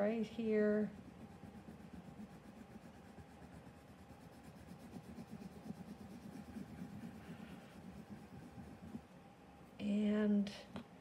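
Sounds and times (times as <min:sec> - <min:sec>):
pencil scratching on paper: 0:00.4 - 0:09.0.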